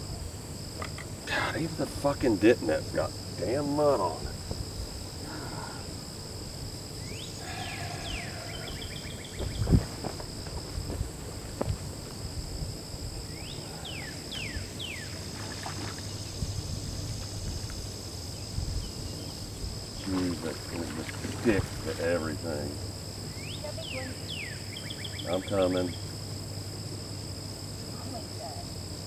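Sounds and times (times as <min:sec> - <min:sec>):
insect chorus buzzing: 0:00.0 - 0:29.0
falling whistled calls: 0:07.0 - 0:09.6.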